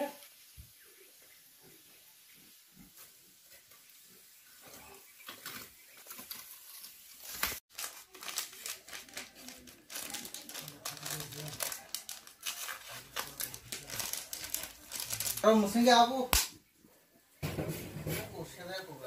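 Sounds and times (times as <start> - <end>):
plastic sachet crinkling: 5.4 - 16.2.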